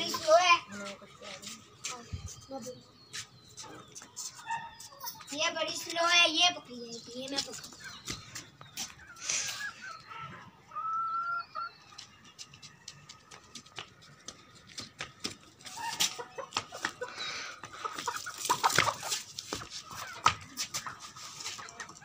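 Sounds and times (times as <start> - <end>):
chickens clucking and squawking: 0.0 - 5.7, 7.4 - 14.3, 15.4 - 22.0.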